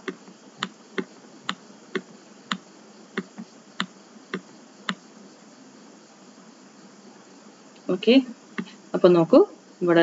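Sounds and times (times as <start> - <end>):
computer mouse clicking: 0.0 - 2.6
faint background hiss: 0.0 - 10.0.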